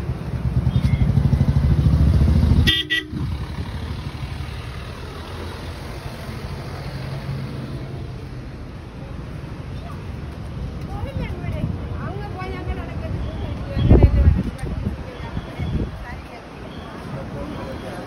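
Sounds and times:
bus horn toot: 2.6s - 3.3s.

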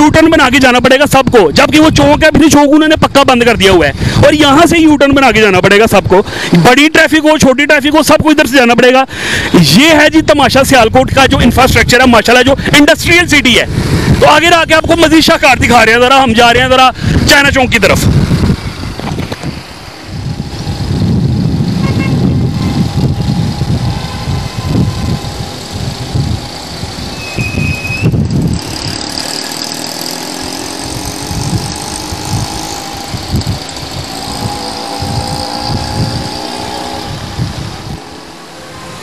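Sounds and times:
wind rumble on microphone: 1.2s - 6.2s, 10.4s - 15.9s, 16.5s - 30.1s, 30.7s - 39.0s
motorcycle engine running: 17.0s - 38.8s.

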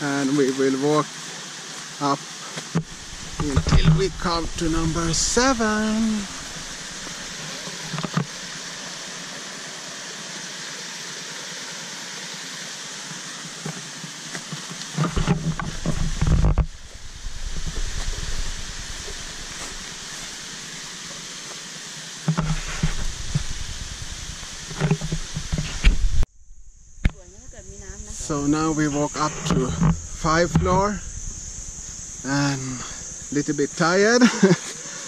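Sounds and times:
water trickling over rocks: 0.0s - 26.0s
low rumbling microphone noise: 2.8s - 8.8s, 15.0s - 21.0s, 22.3s - 34.1s.

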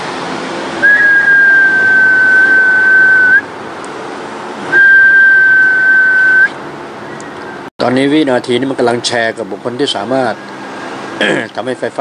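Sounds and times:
high whistle-like tone: 0.8s - 3.5s, 4.7s - 6.6s.

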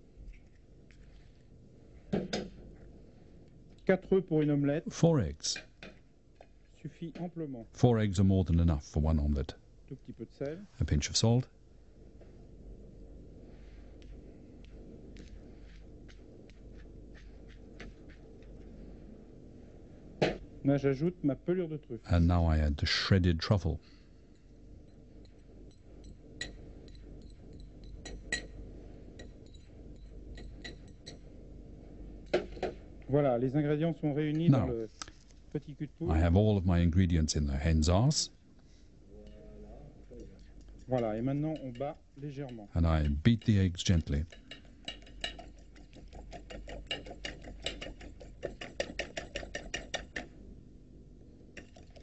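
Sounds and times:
metal fork clinking on plate: 25.2s - 28.6s, 44.3s - 50.2s.

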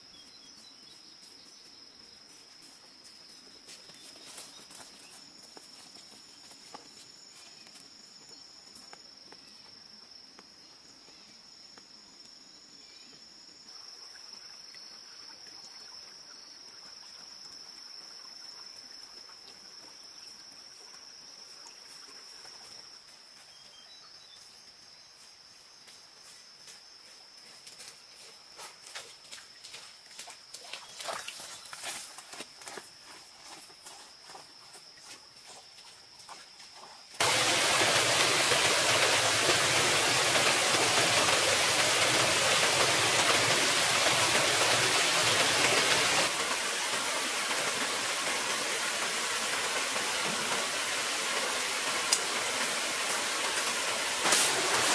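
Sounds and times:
high-pitched insect chorus: 0.0s - 54.9s.

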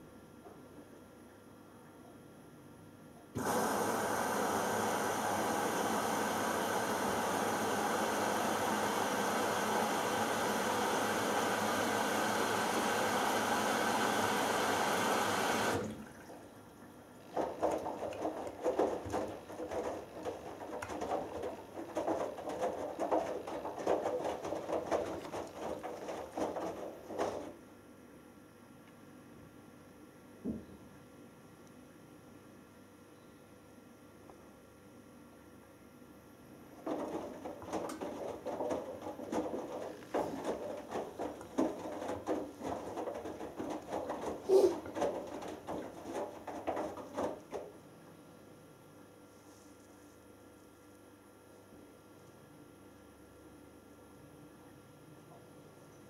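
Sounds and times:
wet laundry sloshing: 15.4s - 27.6s, 36.8s - 47.8s
washing machine drum turning: 17.2s - 27.6s, 36.8s - 47.8s
water rushing into drum: 17.2s - 27.6s, 36.8s - 47.7s.

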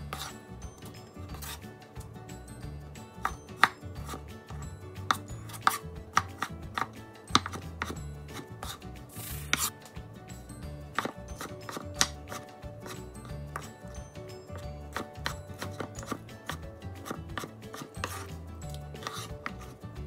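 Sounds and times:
knife chopping on wooden board: 0.0s - 0.4s, 1.3s - 1.6s, 3.2s - 9.7s, 10.9s - 13.8s, 14.9s - 19.8s.

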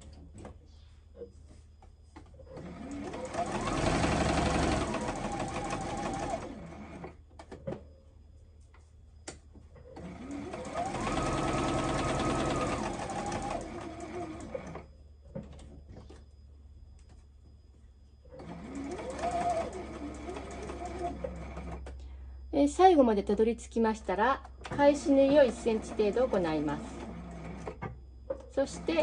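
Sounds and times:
electric sewing machine whirring: 2.5s - 7.2s, 9.9s - 14.8s, 18.4s - 21.8s, 25.1s - 27.7s, 28.6s - 29.0s.

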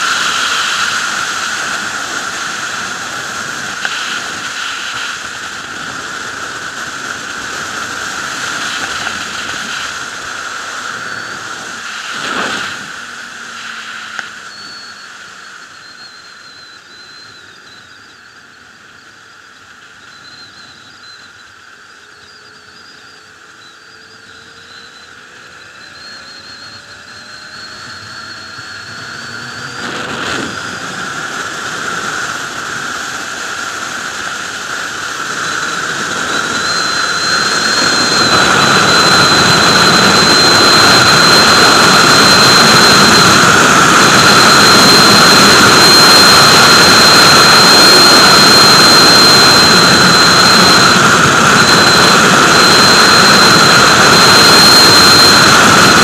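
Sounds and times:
wind rush: 0.0s - 15.3s, 27.7s - 56.0s
motorcycle engine: 0.0s - 56.0s.

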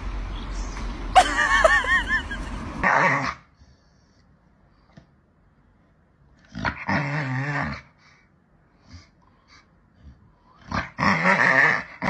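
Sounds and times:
dog growling: 2.8s - 3.6s, 6.4s - 12.0s.

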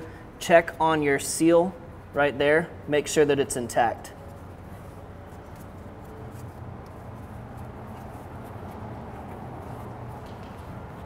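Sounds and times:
steady low hum: 0.0s - 11.0s
gloved hand handling metal parts: 4.2s - 11.0s.

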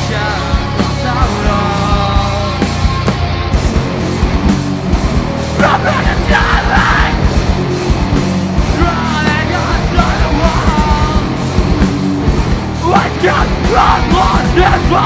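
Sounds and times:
bass guitar: 0.0s - 15.0s
driving drum beat: 0.0s - 15.0s
electric guitar: 0.0s - 15.0s
person singing and yelling: 5.6s - 7.3s, 8.7s - 11.4s, 12.8s - 15.0s.

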